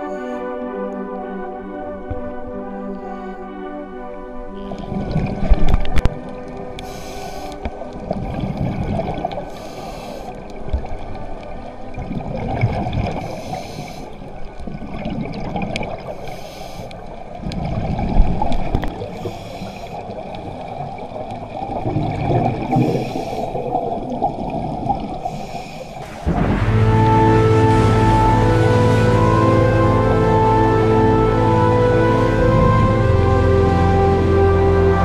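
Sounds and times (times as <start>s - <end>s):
music: 0.0s - 14.5s, 25.5s - 35.0s
bubbles rumbling underwater: 4.6s - 6.6s, 7.7s - 9.6s, 10.4s - 13.3s, 14.4s - 16.2s, 17.2s - 19.4s, 20.0s - 25.4s, 26.0s - 34.9s
regulator breathing hiss: 6.8s - 7.7s, 9.5s - 10.5s, 13.2s - 14.3s, 16.2s - 17.1s, 19.2s - 20.1s, 22.8s - 23.7s, 25.2s - 26.2s.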